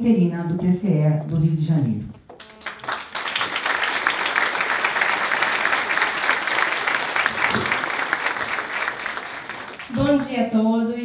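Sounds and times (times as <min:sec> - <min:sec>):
audience applauding: 0:02.3 - 0:10.3.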